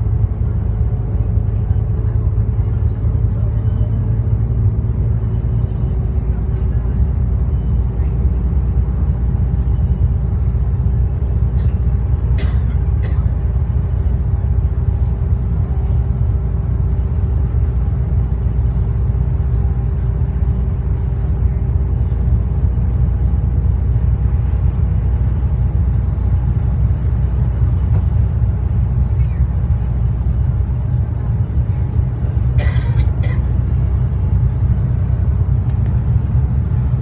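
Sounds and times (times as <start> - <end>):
bus diesel engine rumble: 0.0 - 37.0.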